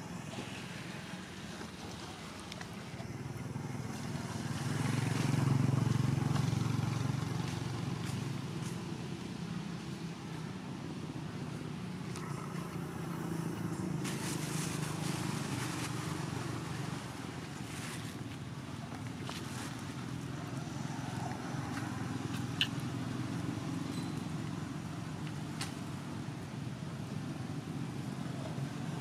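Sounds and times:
vehicle engine hum: 0.0 - 29.0.

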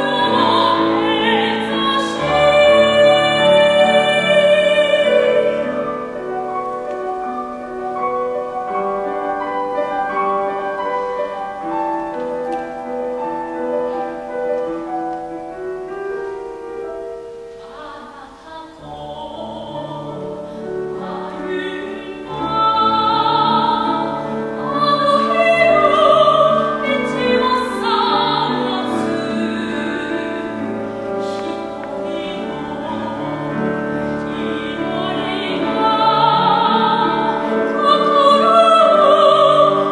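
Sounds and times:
grand piano playing: 0.0 - 39.9
soprano singing with vibrato: 0.0 - 39.9.

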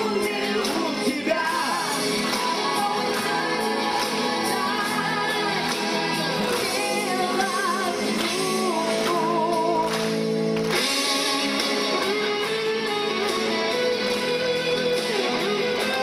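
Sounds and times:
person singing with vibrato: 0.0 - 10.0
musical accompaniment: 0.0 - 16.0.

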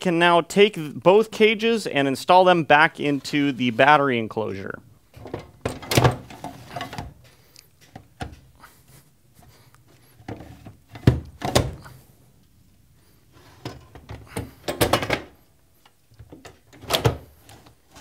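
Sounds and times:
battery cages thunking into enclosure: 5.2 - 7.2, 10.3 - 11.9, 13.6 - 15.4, 16.2 - 17.4.

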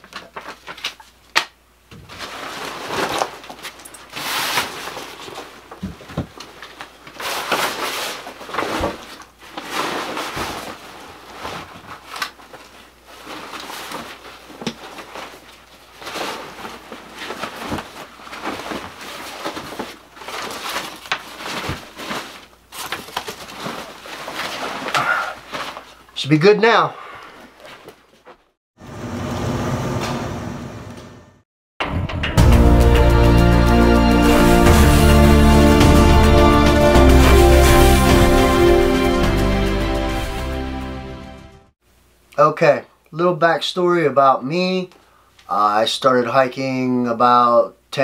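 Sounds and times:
paper map rustling: 0.0 - 1.4, 2.0 - 26.3, 27.4 - 28.6
backpack being packed: 2.1 - 26.0.

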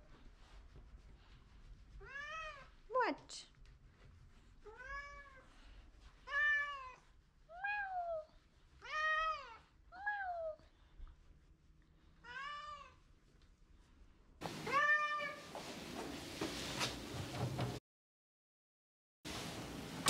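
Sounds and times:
cat meowing: 6.3 - 10.6, 14.7 - 15.5.

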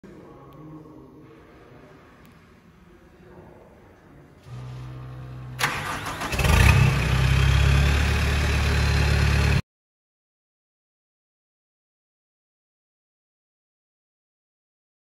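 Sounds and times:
diesel engine idling: 4.5 - 9.6
starter motor cranking: 5.5 - 7.8.

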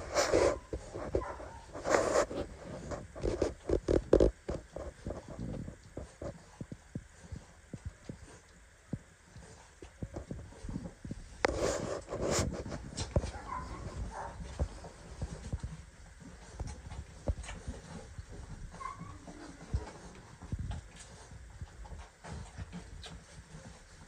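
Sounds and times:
shuffling in wood shavings: 0.0 - 3.6
puppies suckling clicks and smacks: 0.6 - 24.0.

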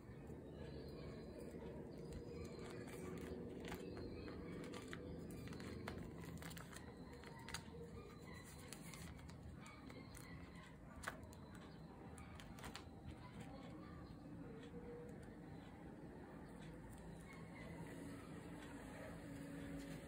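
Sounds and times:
plastic sleeves crinkling: 1.4 - 13.7.

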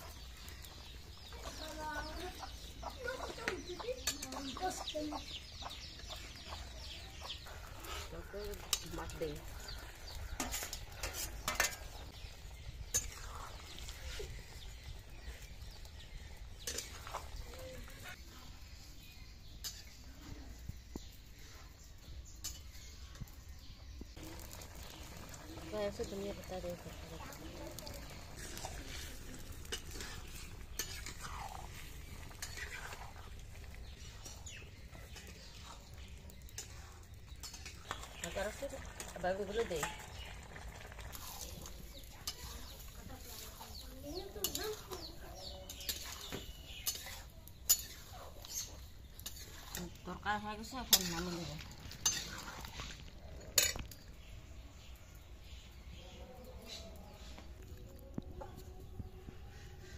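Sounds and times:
metal spatula scraping pan: 7.3 - 12.3, 12.9 - 14.4, 27.1 - 38.6, 41.1 - 54.0
plate and spoon clinking on metal pan: 45.7 - 49.8, 53.4 - 54.0.

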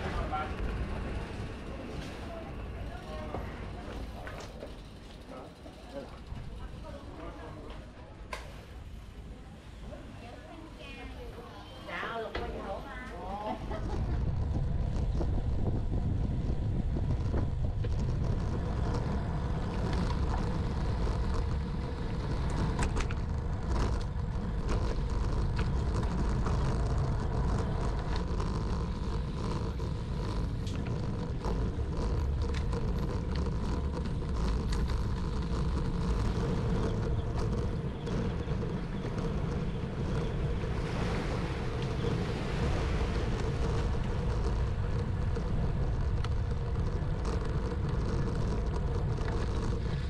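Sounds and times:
bicycle tyre noise: 0.0 - 50.0
wind buffeting microphone: 13.3 - 50.0
bicycle rattling clicks: 13.6 - 50.0.

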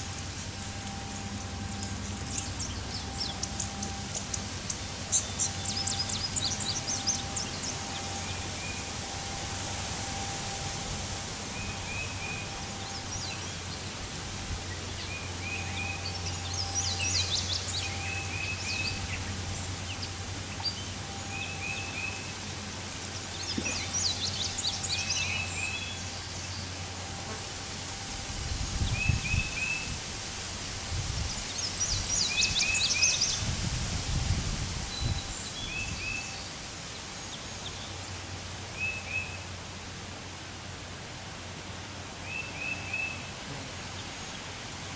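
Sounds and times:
bird chirping: 0.0 - 10.3, 11.4 - 27.0
bird trills: 0.0 - 14.0
wind rumbling on microphone: 28.1 - 36.4.

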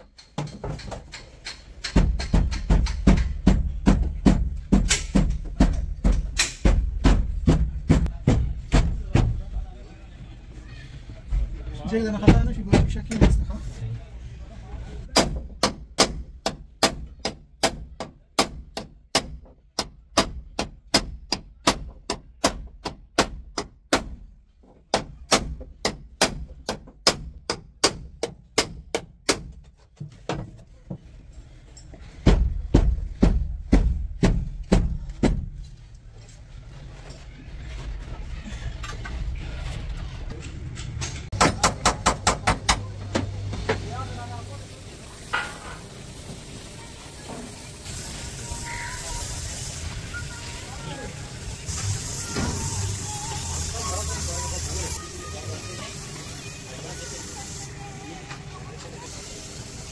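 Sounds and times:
hammer striking sheet metal: 41.1 - 42.9, 45.2 - 46.0.

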